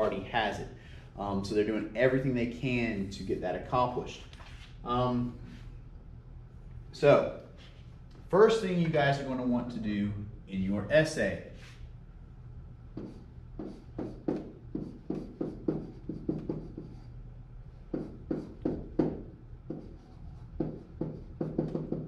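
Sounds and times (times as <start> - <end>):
pen tapping and scratching on whiteboard: 13.0 - 17.1, 17.9 - 22.0.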